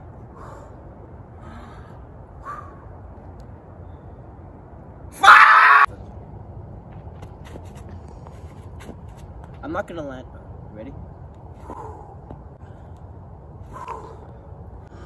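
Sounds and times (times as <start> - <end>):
person yelling: 5.2 - 5.9.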